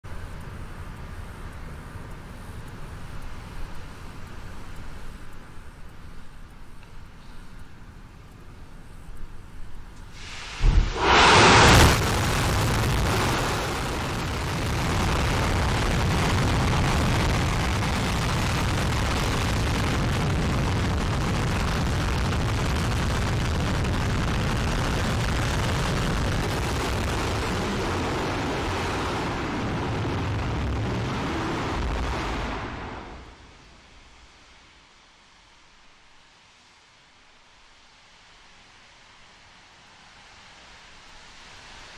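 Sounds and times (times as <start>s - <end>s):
rocket engine roaring: 10.2s - 33.8s.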